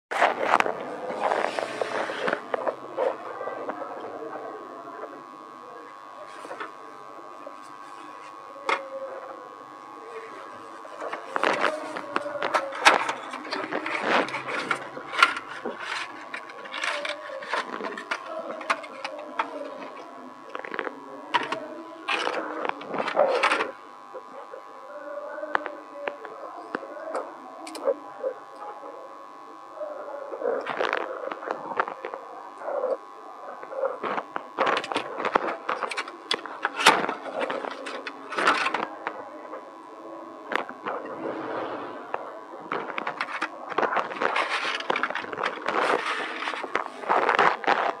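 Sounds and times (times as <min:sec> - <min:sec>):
plastic rustling: 0:10.4 - 0:23.8, 0:42.6 - 0:48.0
plastic tray clicking and crackling: 0:11.0 - 0:23.8, 0:34.1 - 0:39.2, 0:42.8 - 0:48.0.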